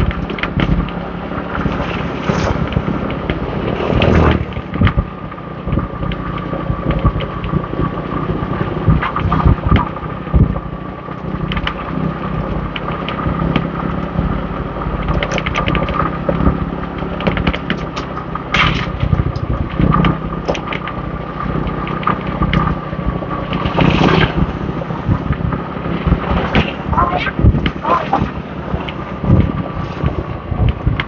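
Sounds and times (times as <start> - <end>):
motorbike engine running: 0.0 - 31.0
wind buffeting microphone: 0.0 - 31.0.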